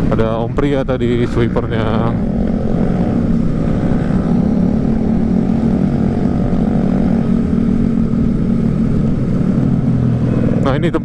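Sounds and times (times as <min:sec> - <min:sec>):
scooter engine cruising: 0:00.0 - 0:11.0
wind and road noise: 0:00.0 - 0:11.0.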